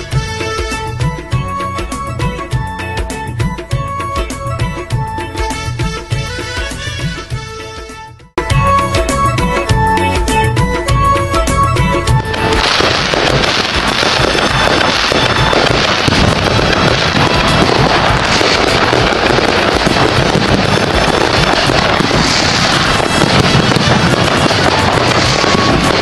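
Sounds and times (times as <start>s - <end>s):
fireworks bursting and crackling: 0.0s - 0.9s, 12.0s - 26.0s
music track: 0.0s - 26.0s.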